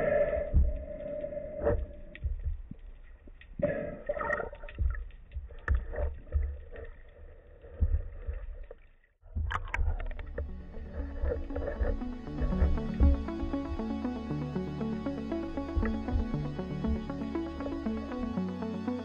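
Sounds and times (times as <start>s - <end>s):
underwater rumble of moving water: 0.0s - 18.3s
knocks and bumps: 4.7s - 6.8s.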